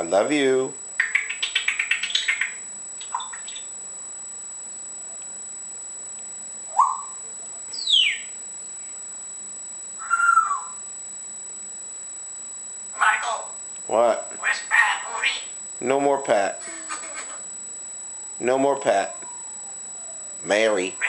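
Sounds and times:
parrot chirping: 1.0s - 3.7s, 6.7s - 8.4s, 10.0s - 10.8s, 13.0s - 13.6s, 14.4s - 15.6s
parrot warbling call: 1.0s - 3.7s, 6.7s - 7.2s, 7.8s - 8.3s, 10.0s - 10.8s, 13.0s - 13.6s, 14.4s - 15.6s
parrot whistling: 1.0s - 3.7s, 6.7s - 7.2s, 7.8s - 8.4s, 10.0s - 10.8s, 14.4s - 15.5s.

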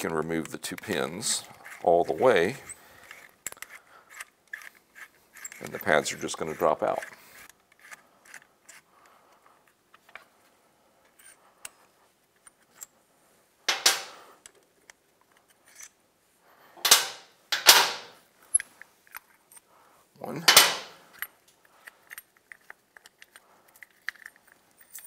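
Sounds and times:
pins clattering on metal bench: 13.7s - 14.2s, 16.8s - 18.2s, 20.4s - 21.1s.

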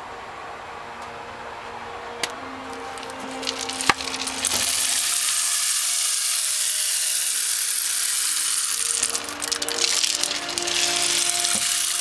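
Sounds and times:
rainstick rain-like hiss: 2.6s - 12.0s
rainstick handling knocks: 3.0s - 5.1s, 8.6s - 12.0s.

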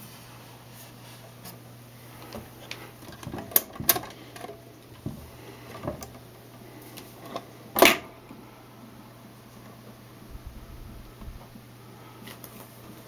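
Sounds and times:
steady low hum: 0.0s - 13.0s
record changer clicks and knocks: 2.2s - 6.2s, 7.3s - 8.1s.

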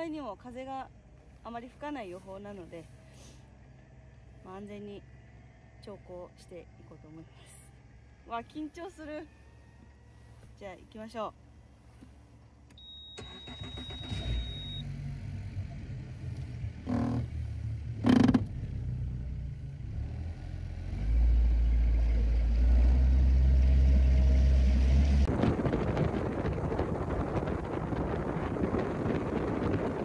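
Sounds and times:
outboard motor running: 16.8s - 19.2s
wind rushing: 25.3s - 30.0s.

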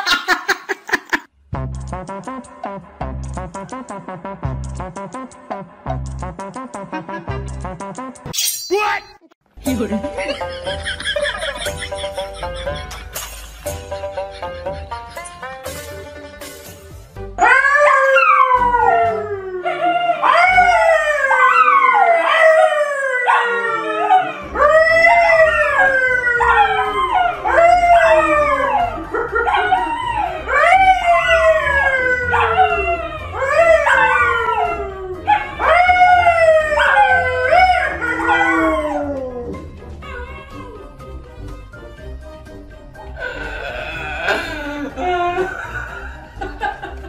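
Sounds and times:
man howling: 17.4s - 40.9s, 43.2s - 46.0s
dogs howling: 17.4s - 41.0s.

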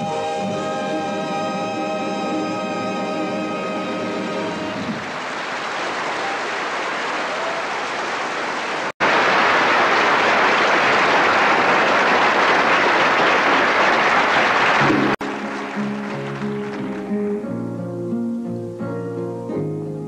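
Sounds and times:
audience applauding: 4.7s - 17.4s.

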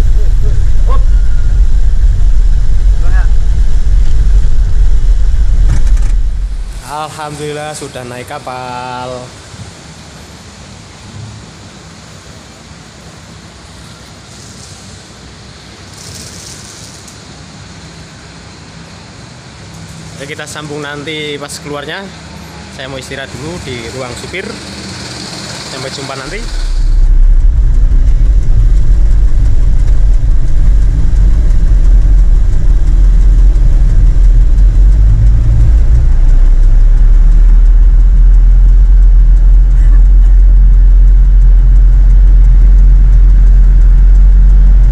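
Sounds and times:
heavy engine rumbling: 0.0s - 8.2s, 18.8s - 44.9s
ferry machinery drone: 0.0s - 16.0s, 17.4s - 44.9s
hisses: 23.7s - 27.2s.

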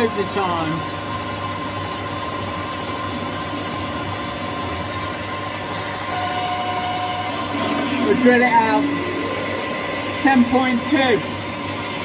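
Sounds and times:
thin steady whine: 0.0s - 12.0s
new steady whine: 1.0s - 12.0s
metal lathe hum: 4.0s - 12.0s.

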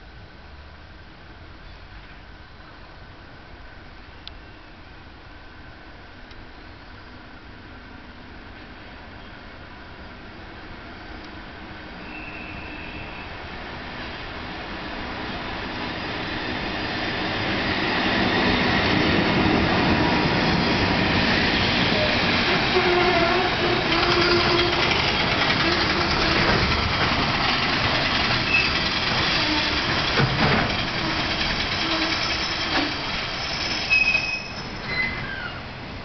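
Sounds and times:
train rumbling along rails: 0.4s - 36.0s
clickety-clack of wheels: 23.6s - 35.3s.

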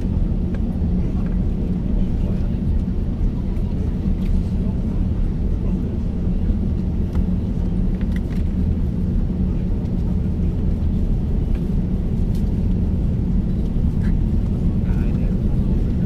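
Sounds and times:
airplane cabin low rumble: 0.0s - 16.0s.

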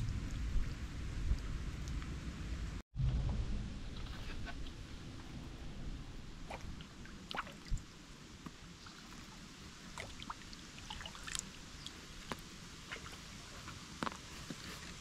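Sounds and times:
paddle splashing in water: 6.4s - 7.9s, 8.5s - 11.6s
water dripping from paddle: 6.5s - 7.9s, 8.8s - 13.3s.

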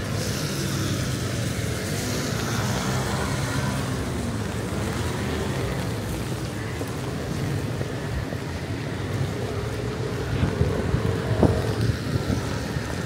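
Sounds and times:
traffic on wet roads: 0.0s - 13.0s
wind rumbling on microphone: 0.0s - 13.0s.

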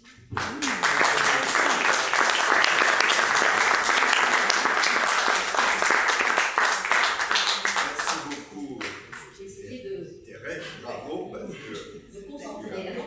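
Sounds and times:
audience applauding: 0.0s - 9.3s.

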